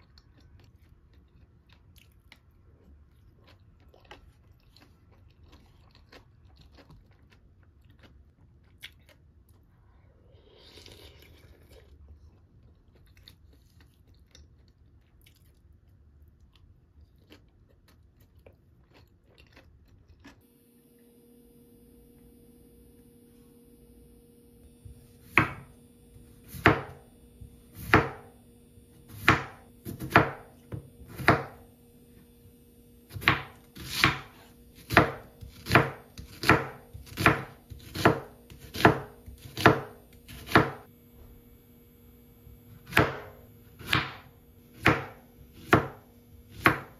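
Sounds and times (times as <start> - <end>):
knife chopping onto wooden board: 25.0 - 25.7, 26.5 - 27.0, 27.8 - 28.3, 29.1 - 31.6, 33.1 - 40.9, 42.8 - 46.9.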